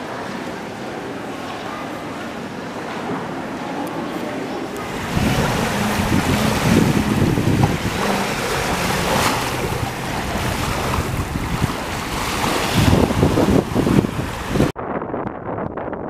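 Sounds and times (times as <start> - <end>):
small waves washing on shore: 4.6 - 14.7
wind on microphone: 4.8 - 16.0.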